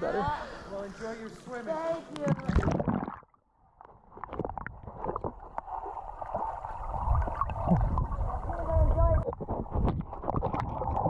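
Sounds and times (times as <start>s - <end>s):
muffled rush of water: 0.0s - 3.2s, 4.1s - 11.0s
bubbling: 2.2s - 11.0s.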